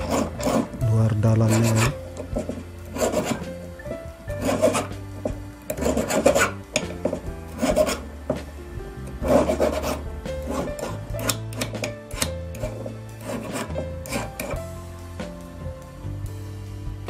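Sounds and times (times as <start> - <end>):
metal file rasping on steel: 0.0 - 3.6, 4.3 - 8.1, 9.2 - 14.6
background music with held notes: 0.0 - 17.0.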